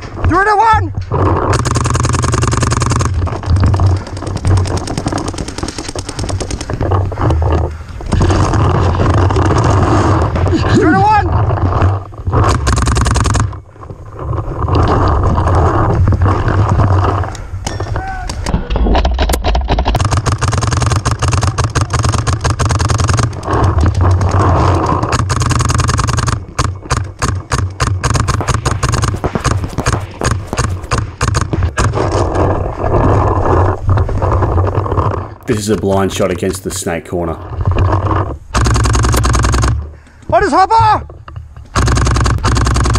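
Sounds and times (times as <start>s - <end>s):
paintball markers firing rapidly: 1.1s - 7.3s, 8.1s - 10.5s, 12.3s - 13.6s, 18.4s - 32.5s, 38.5s - 39.9s, 41.7s - 42.9s.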